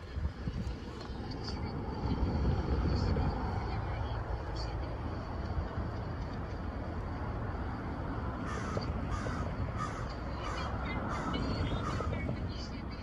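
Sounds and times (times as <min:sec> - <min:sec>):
low background rumble: 0:00.0 - 0:13.0
crow cawing: 0:08.4 - 0:12.2.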